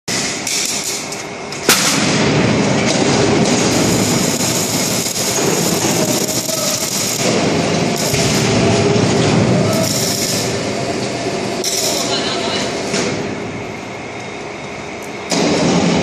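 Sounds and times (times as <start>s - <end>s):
factory machinery noise: 0.1s - 16.0s
sharp bang: 15.3s - 16.0s.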